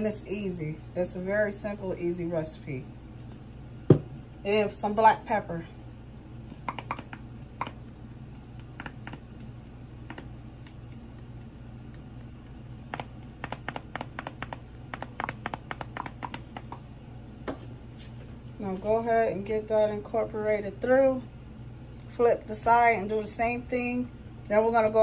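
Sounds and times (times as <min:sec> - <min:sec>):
pepper shaker clicks and taps: 0:06.6 - 0:16.9.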